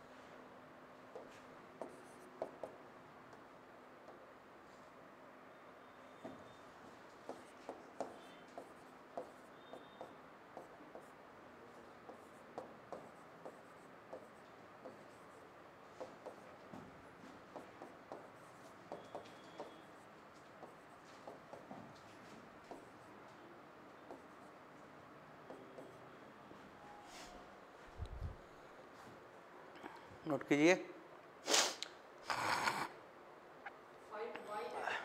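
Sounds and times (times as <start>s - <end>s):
pen writing scratches and taps: 1.1s - 3.4s, 7.2s - 15.4s, 16.0s - 23.1s, 24.0s - 24.4s, 25.4s - 26.0s.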